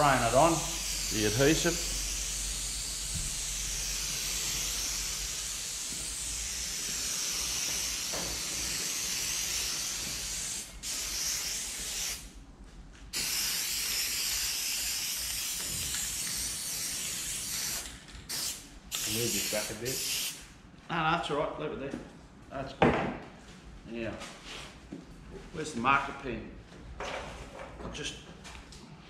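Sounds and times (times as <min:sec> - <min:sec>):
aerosol spray hissing from can: 0:00.0 - 0:12.3, 0:13.1 - 0:20.4.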